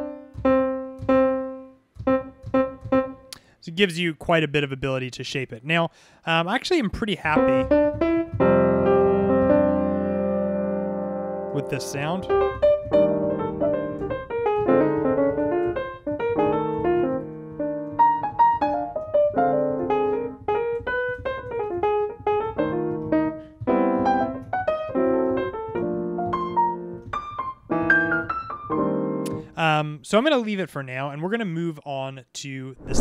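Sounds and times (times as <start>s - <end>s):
piano chords and melody: 0.0s - 3.4s, 7.4s - 29.4s.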